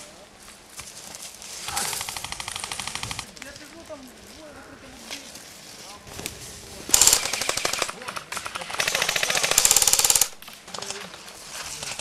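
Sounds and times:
airsoft rifle firing bursts: 0:01.8 - 0:03.3, 0:06.9 - 0:11.0.

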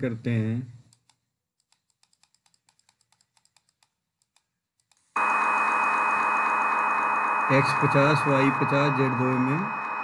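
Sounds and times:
keyboard and mouse clicks: 0:00.8 - 0:05.1
machine hum with high tone: 0:05.2 - 0:10.0.

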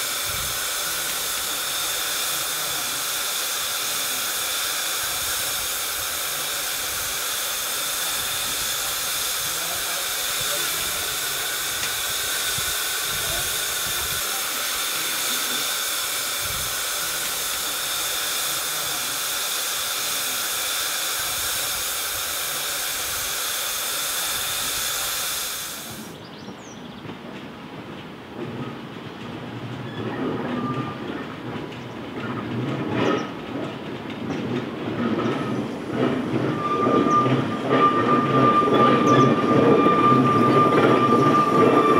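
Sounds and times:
steam hissing: 0:00.0 - 0:26.2, 0:34.7 - 0:41.9
steam locomotive moving off: 0:00.0 - 0:26.2, 0:29.6 - 0:41.9.

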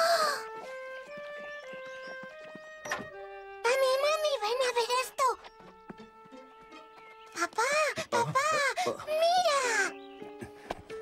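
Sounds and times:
gentle background music: 0:00.0 - 0:11.0.

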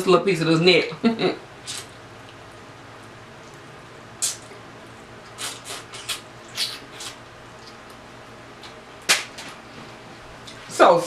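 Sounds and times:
wet eating smacks and sucking: 0:01.6 - 0:02.4, 0:04.2 - 0:04.6, 0:05.2 - 0:08.0.

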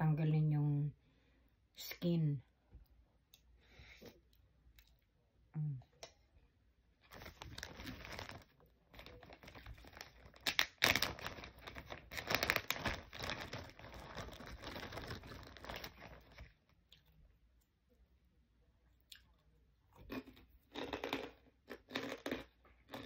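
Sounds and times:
plastic bag crinkling: 0:07.0 - 0:16.6.

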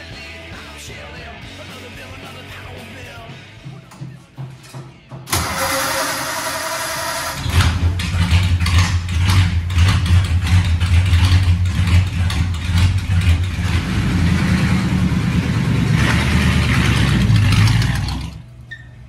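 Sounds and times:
car engine lumpy rumble: 0:07.3 - 0:18.7.

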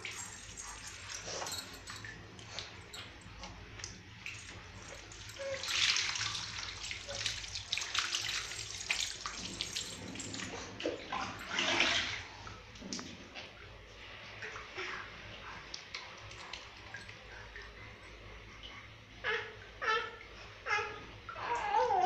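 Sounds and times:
water pouring and splashing: 0:00.0 - 0:03.2, 0:03.8 - 0:13.6
water dripping: 0:00.0 - 0:13.2.

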